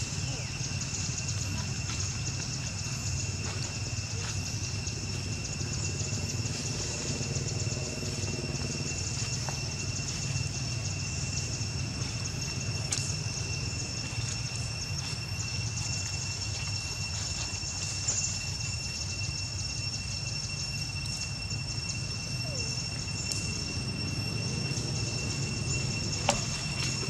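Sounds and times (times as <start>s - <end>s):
high-pitched insect drone: 0.0s - 27.0s.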